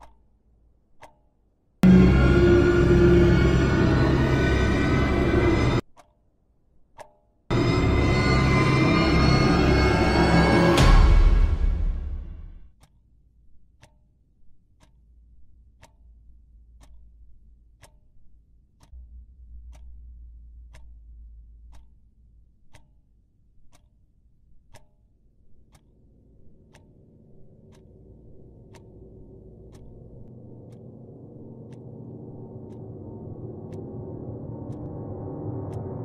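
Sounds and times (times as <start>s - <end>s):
clock ticking: 0.0s - 36.0s
low hum: 1.8s - 5.8s, 7.5s - 12.6s, 18.9s - 22.5s, 25.8s - 36.0s.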